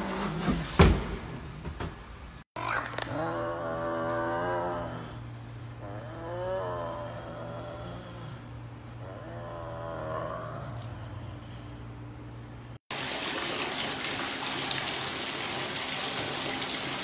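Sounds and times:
serval growling: 3.1 - 11.7
steady low hum: 3.1 - 12.8.

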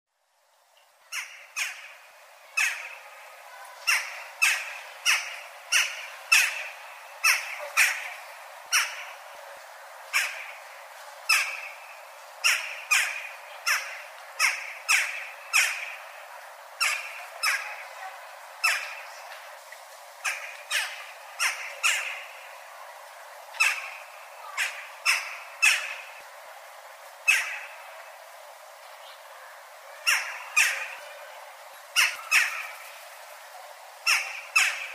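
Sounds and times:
jackdaw calling: 1.1 - 3.2, 3.8 - 9.4, 10.0 - 16.2, 16.8 - 17.9, 18.6 - 19.2, 20.2 - 22.6, 23.5 - 26.4, 27.2 - 28.1, 30.0 - 31.3, 31.9 - 33.0, 34.0 - 34.9.

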